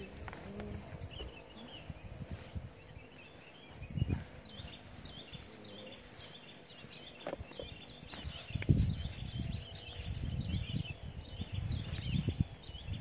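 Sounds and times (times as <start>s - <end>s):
small birds chirping: 0.0s - 13.0s
rubbing and knocking on microphone: 7.2s - 10.7s.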